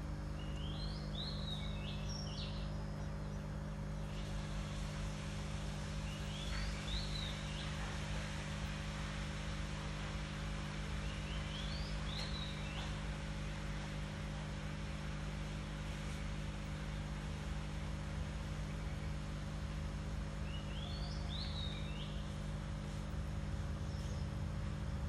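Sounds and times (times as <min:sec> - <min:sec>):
small bird chirping: 0:00.4 - 0:03.4.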